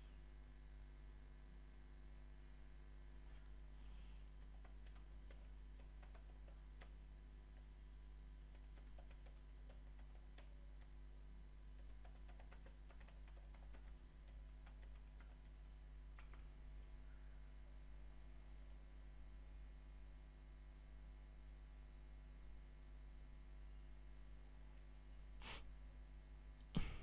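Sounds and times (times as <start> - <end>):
steady low hum: 0.0 - 27.0
keyboard typing: 4.4 - 7.7, 8.4 - 11.0, 11.8 - 15.6, 16.2 - 16.5.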